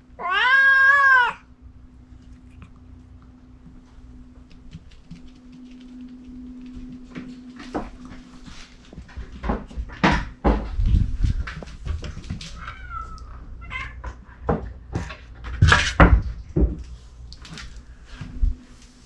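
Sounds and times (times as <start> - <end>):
kitten meowing: 0.2 - 1.4
knocks and thumps: 8.9 - 12.6, 14.0 - 16.8.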